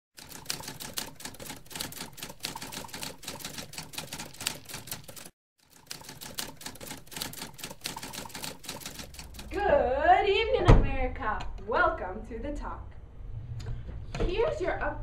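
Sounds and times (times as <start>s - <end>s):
typewriter keys clacking: 0.2s - 9.5s.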